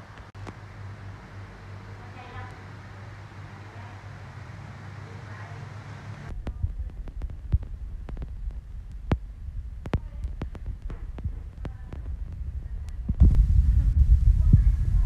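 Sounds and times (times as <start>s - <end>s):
sharp clicks and taps: 6.3s - 9.2s, 9.8s - 13.4s.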